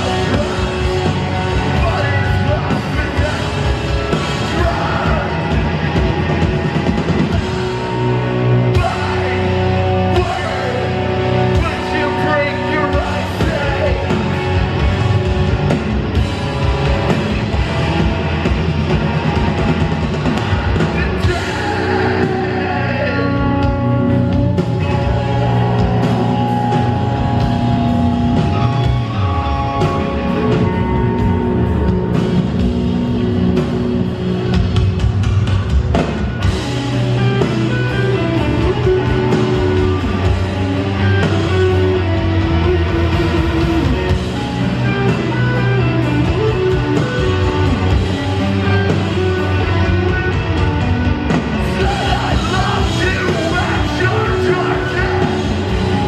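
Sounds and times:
bass: 0.0 - 56.0
distorted electric guitars: 0.0 - 56.0
drums: 0.0 - 56.0
person singing: 20.9 - 23.8, 51.6 - 56.0.

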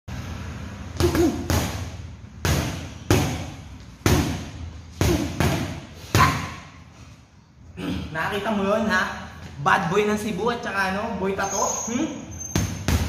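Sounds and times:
boxing gloves punching heavy bags: 1.0 - 6.6, 12.5 - 13.0.

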